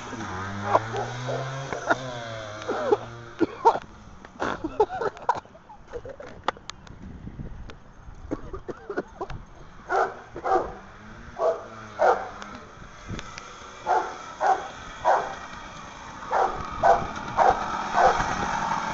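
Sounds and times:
dog barking: 0.6 - 1.6, 9.9 - 10.8, 11.4 - 12.4, 13.9 - 15.4, 16.3 - 18.2.

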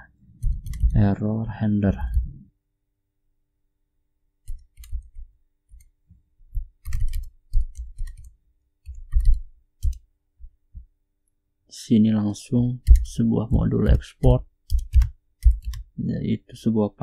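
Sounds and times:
computer keyboard typing: 0.4 - 1.0, 4.4 - 10.0, 12.8 - 16.0.

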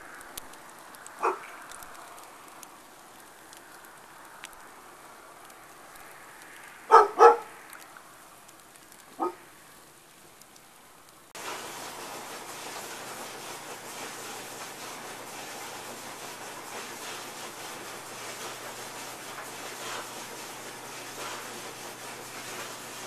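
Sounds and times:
campfire crackling: 0.0 - 23.0
steady hiss: 0.0 - 23.0
dog barking: 1.2 - 1.5, 6.9 - 7.5, 9.2 - 9.4.

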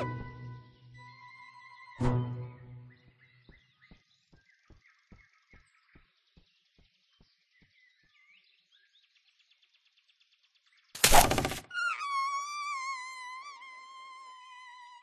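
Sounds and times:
birds chirping: 0.0 - 9.0.

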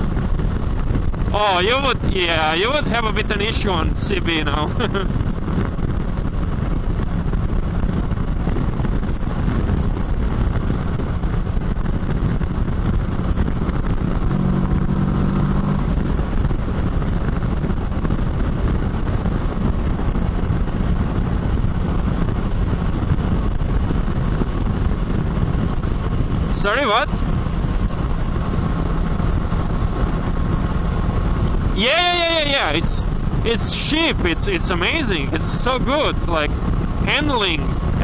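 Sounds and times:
motorcycle engine cruising: 0.0 - 38.0
wind and road noise: 0.0 - 38.0.

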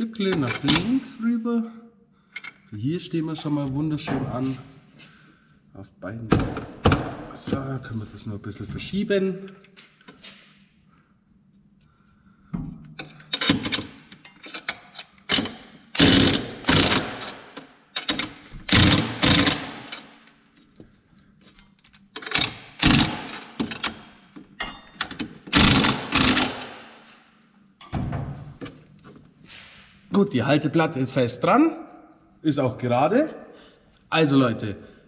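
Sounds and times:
impact wrench hammering: 15.3 - 20.1, 22.2 - 24.0, 24.7 - 27.0.

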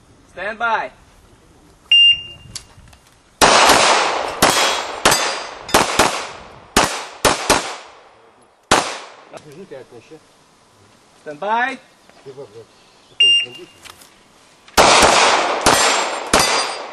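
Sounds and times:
electronic timer beep: 1.9 - 2.4, 13.2 - 13.6
gunshots with ringing echo: 3.4 - 8.0, 8.7 - 9.3, 14.8 - 16.9.

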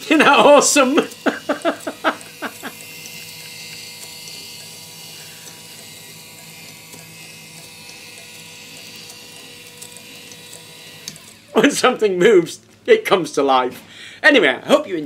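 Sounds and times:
model engine mechanical whir: 0.0 - 11.6.

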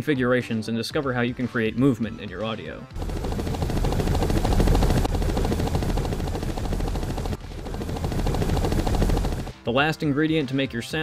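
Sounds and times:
low engine rumble: 3.0 - 9.5
helicopter rotor chopping: 3.0 - 9.6.

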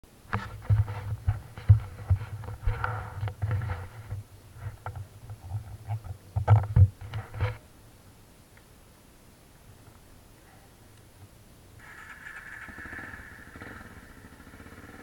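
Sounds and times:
dirt bike thumping over rough ground: 0.3 - 5.0.

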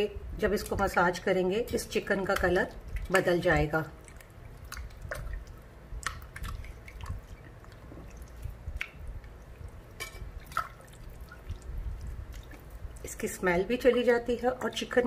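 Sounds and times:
hands squelching raw chicken: 2.1 - 13.1
small splashes in bowl: 2.1 - 13.2.

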